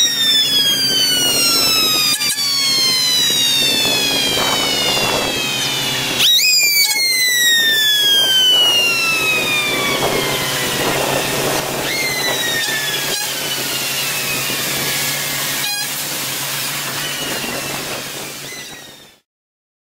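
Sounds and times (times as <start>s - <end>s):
low engine hum: 0.0s - 18.4s
mechanical siren wailing: 0.0s - 19.2s.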